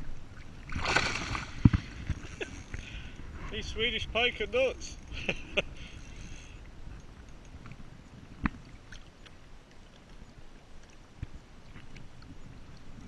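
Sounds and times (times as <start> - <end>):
low wind rumble: 0.0 - 8.9
water lapping against kayak: 0.0 - 13.0.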